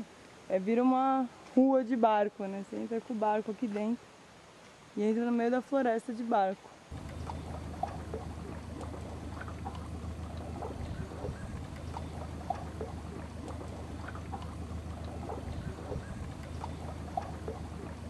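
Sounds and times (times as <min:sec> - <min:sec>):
water gurgles and splashes: 0:06.8 - 0:18.0.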